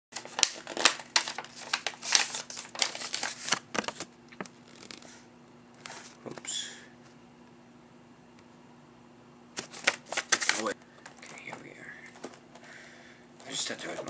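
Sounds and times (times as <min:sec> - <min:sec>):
paper rustling and crinkling: 0:00.2 - 0:05.2, 0:09.6 - 0:12.4.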